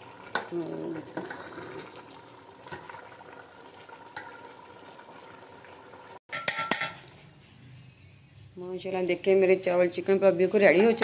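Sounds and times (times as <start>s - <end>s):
rice and stock simmering: 0.0s - 7.7s.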